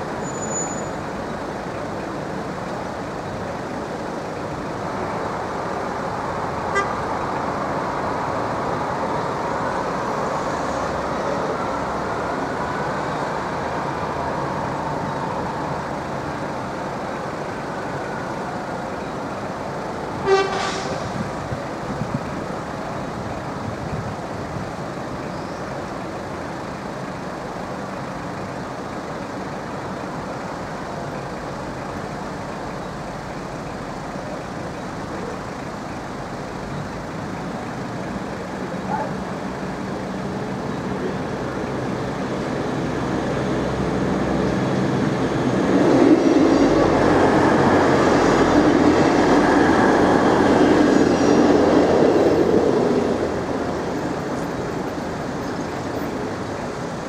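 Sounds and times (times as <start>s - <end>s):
steady vehicle noise: 0.0s - 57.0s
short horn toot: 20.2s - 21.2s.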